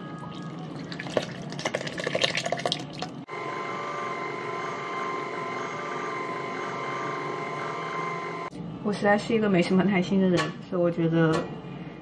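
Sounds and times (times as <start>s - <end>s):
hot liquid splashing into bowl: 0.8s - 3.1s
stand mixer humming: 3.3s - 8.5s.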